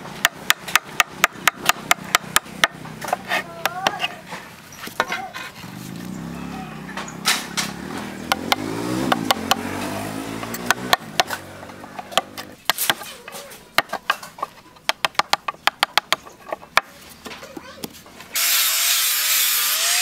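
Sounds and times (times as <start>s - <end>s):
hatchet chopping wood: 0.0s - 4.1s, 7.2s - 17.0s
engine hum: 0.0s - 12.6s.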